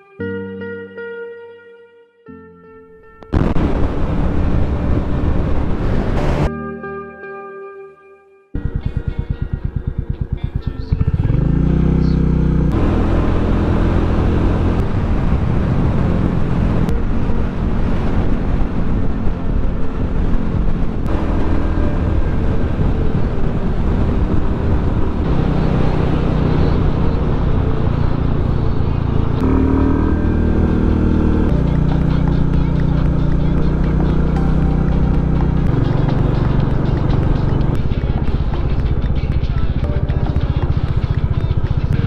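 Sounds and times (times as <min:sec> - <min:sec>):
wind noise: 0:03.2 - 0:06.5, 0:12.7 - 0:42.0
motorcycle engine running: 0:03.3 - 0:06.5, 0:08.6 - 0:42.0.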